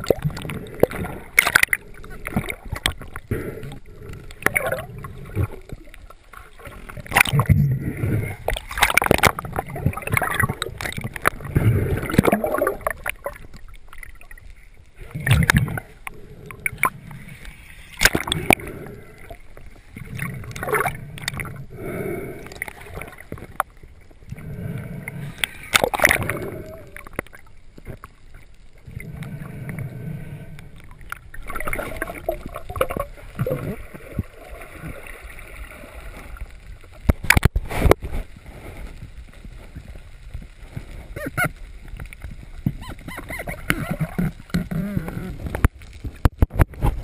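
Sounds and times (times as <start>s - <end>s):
water splashing around boat: 0.0s - 21.8s, 22.4s - 30.0s.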